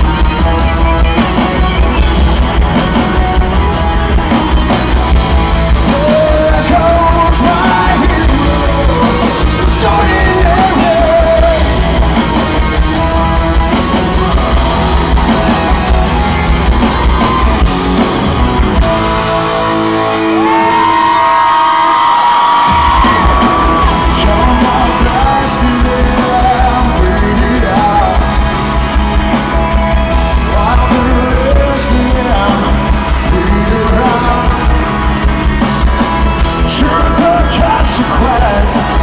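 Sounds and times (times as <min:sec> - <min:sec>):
live rock band: 0:00.0 - 0:39.0
man singing: 0:05.7 - 0:13.6, 0:23.0 - 0:28.9, 0:30.3 - 0:35.1, 0:36.6 - 0:39.0.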